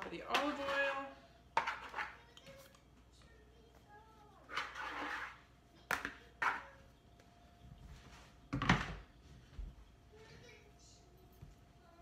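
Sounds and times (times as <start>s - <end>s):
faint steady hum: 0.0s - 12.0s
plastic bowl scraping rustle: 4.5s - 5.4s.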